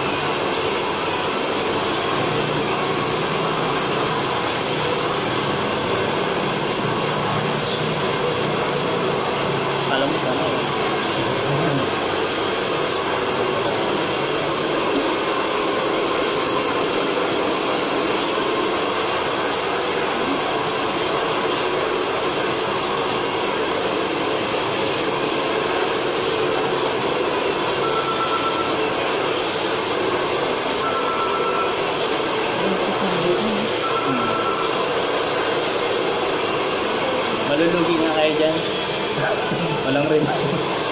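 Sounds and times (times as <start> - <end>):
faint short beep: 27.8 - 28.8, 30.8 - 31.8, 33.8 - 34.8.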